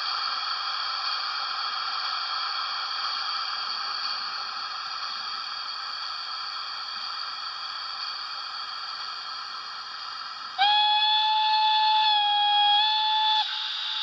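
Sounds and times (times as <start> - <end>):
hiss of steam from speaker: 0.0 - 14.0
steam whistle: 10.6 - 14.0.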